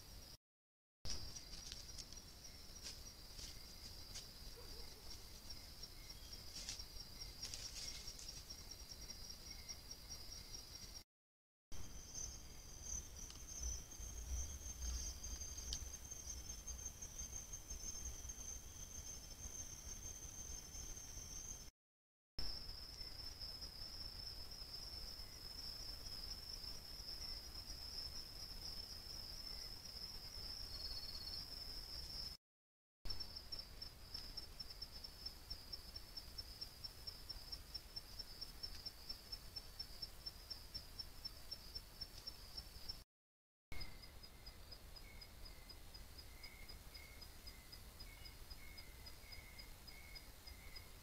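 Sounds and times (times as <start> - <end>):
night insects trilling: 1.3 - 11.0, 11.8 - 21.7, 22.6 - 32.3, 43.8 - 51.0.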